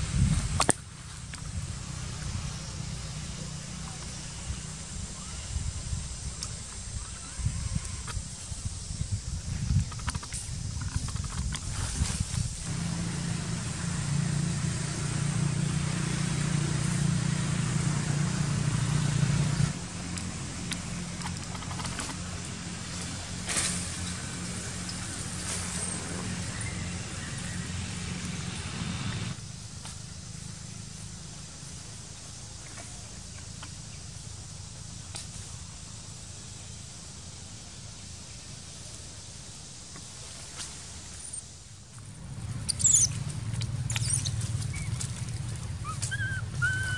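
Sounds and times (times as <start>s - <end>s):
steady outdoor hiss: 0.0s - 46.9s
motor running with low hum: 12.4s - 36.8s.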